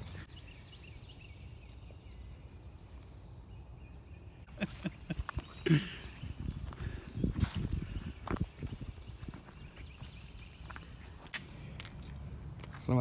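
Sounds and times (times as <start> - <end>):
footsteps on leafy pavement: 4.6 - 13.0.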